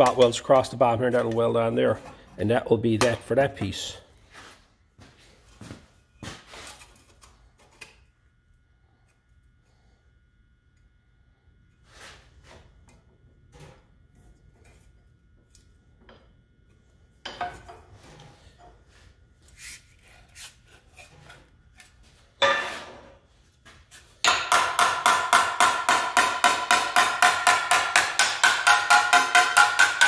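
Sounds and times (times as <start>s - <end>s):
hammer striking sheet metal: 22.4s - 23.0s, 24.2s - 30.0s.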